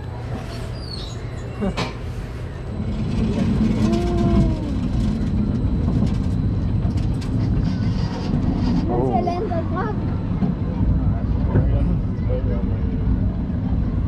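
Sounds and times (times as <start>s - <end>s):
roller coaster chain lift rattling: 2.7s - 9.9s.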